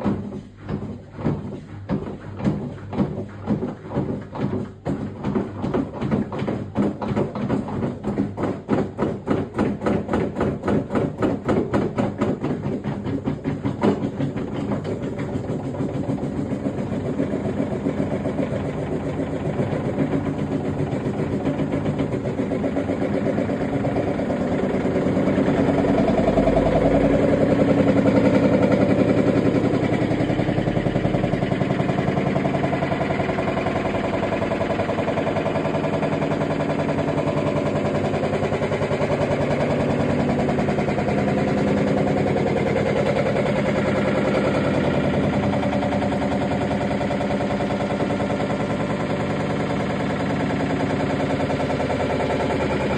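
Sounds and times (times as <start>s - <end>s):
washing machine spin rumble: 0.0s - 52.9s.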